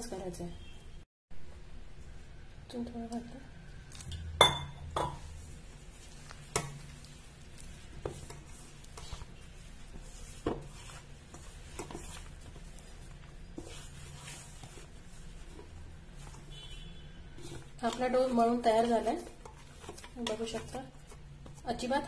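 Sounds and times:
hand squishing dough: 0:05.0 - 0:22.0.

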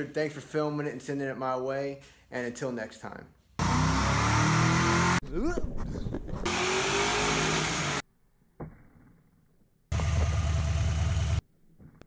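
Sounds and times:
car engine running: 0:09.9 - 0:11.4.

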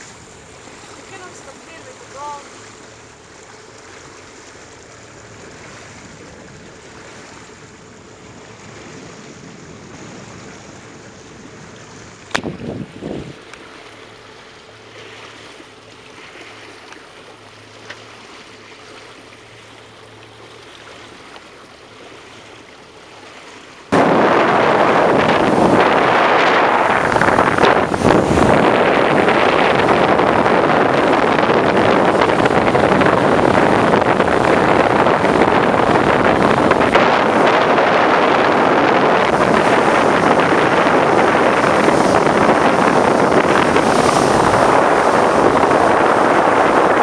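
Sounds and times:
water lapping around boat: 0:00.0 - 0:47.0
wind noise on microphone: 0:08.2 - 0:13.6, 0:23.9 - 0:47.0.

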